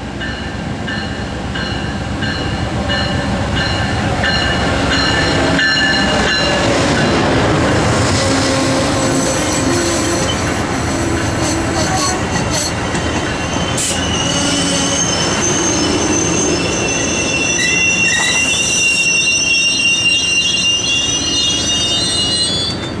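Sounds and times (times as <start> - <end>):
train coaches rolling rumble: 0.0 - 23.0
train brakes squealing: 8.5 - 23.0.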